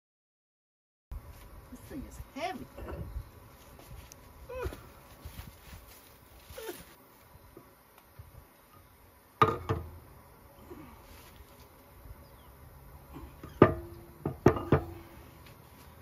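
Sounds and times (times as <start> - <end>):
sharp metal knocks: 9.4 - 10.0, 13.4 - 15.0.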